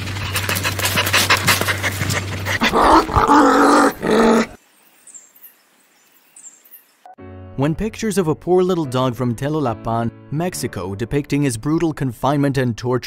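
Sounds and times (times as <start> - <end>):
dog panting: 0.0 - 3.3
dog growling: 0.0 - 4.6.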